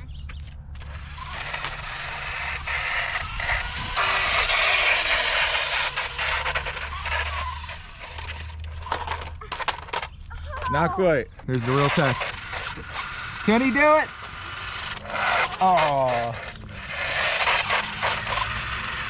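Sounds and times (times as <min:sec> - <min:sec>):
toy motorcycle on rough concrete: 0:00.0 - 0:19.0.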